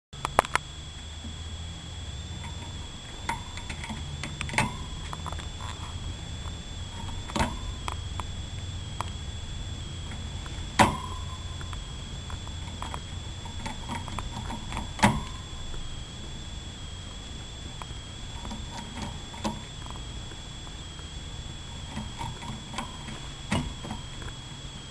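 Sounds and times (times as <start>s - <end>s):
hamster gnawing crunching clicks: 0.2s - 0.7s, 2.4s - 8.4s, 21.8s - 24.4s
faint high whine: 0.2s - 24.9s.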